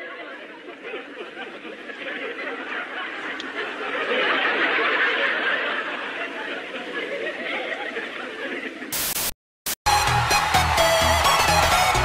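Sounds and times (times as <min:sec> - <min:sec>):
people laughing: 0:00.0 - 0:09.0.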